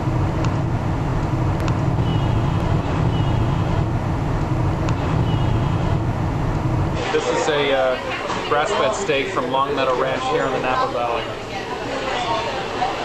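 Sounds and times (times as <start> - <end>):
car road and engine drone: 0.0 - 7.8.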